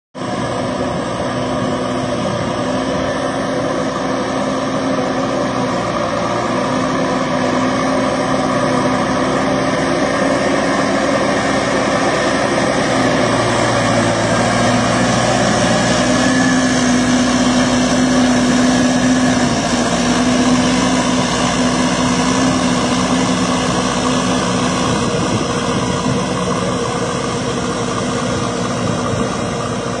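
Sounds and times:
diesel tractor engine running: 0.2s - 30.0s.

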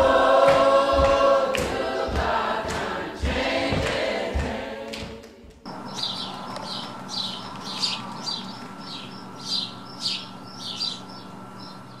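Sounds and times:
faint steady hum: 0.0s - 12.0s
young songbird chirping: 5.7s - 12.0s.

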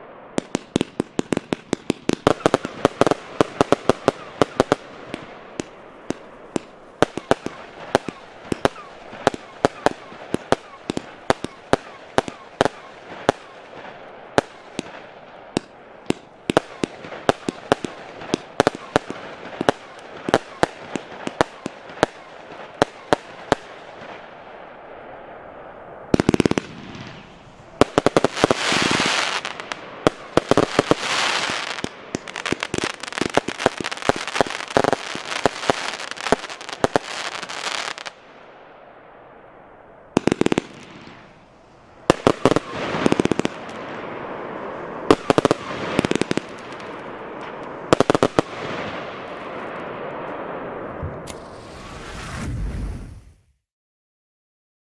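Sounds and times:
firework reports: 0.0s - 38.2s, 40.1s - 53.6s
rapid firework popping: 0.4s - 13.5s, 26.2s - 38.1s, 42.1s - 44.1s
firework hiss: 26.2s - 38.2s, 51.2s - 53.5s.

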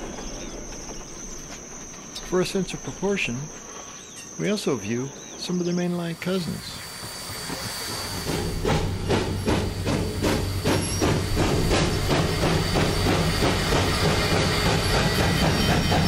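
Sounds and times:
steam locomotive chuffing: 0.0s - 16.0s
steam hiss: 2.2s - 16.0s.

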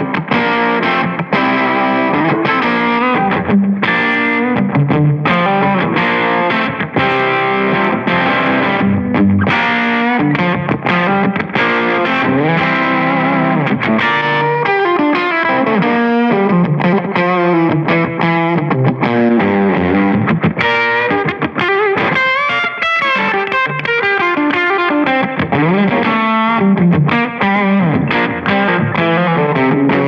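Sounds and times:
distorted electric guitar: 0.0s - 30.0s.

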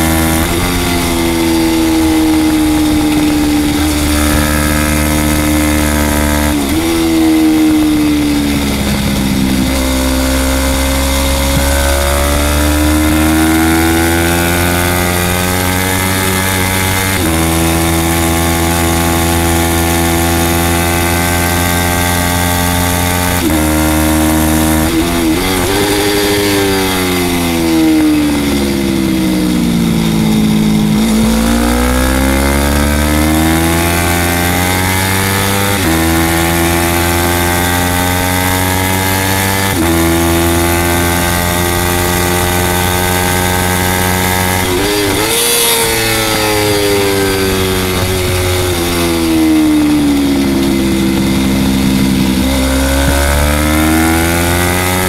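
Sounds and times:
motorcycle engine revving high: 0.0s - 55.0s
wind rush over microphone: 0.0s - 55.0s.

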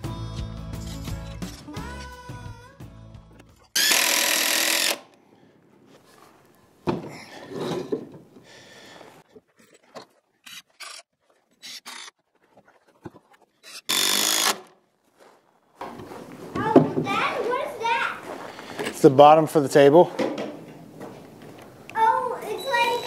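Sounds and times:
tool grinding wood: 3.5s - 5.1s, 9.7s - 14.8s
scraping: 5.7s - 14.0s
knocks: 15.8s - 17.2s.

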